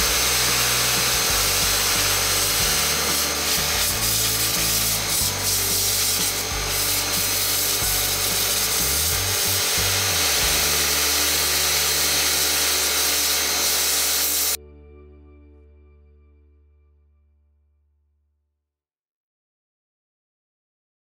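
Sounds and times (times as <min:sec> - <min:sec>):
pressure washer spray hiss: 0:00.0 - 0:14.6.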